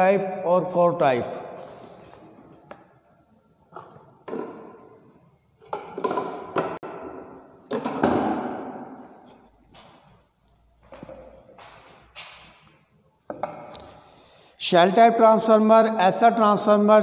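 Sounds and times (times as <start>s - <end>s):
hard objects knocking and thumping: 3.7s - 5.0s, 5.6s - 10.0s, 13.3s - 13.9s.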